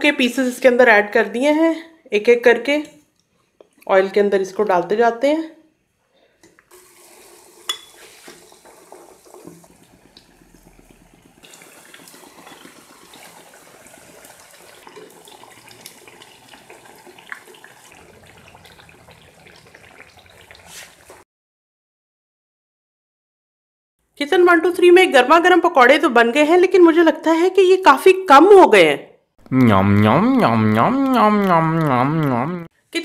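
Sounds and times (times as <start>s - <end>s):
oil sizzling: 6.6s - 21.2s.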